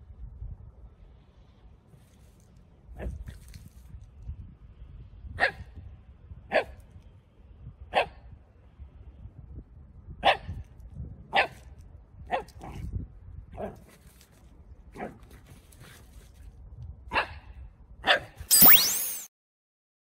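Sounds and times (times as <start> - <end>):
dog barking: 5.4 - 5.6, 7.9 - 8.2, 11.3 - 11.6, 18.0 - 18.3.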